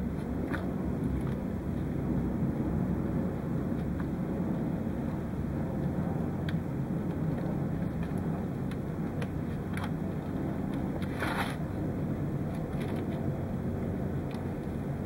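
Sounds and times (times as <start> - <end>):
low room rumble: 0.0 - 15.0
rustle of handling wires: 12.4 - 13.4.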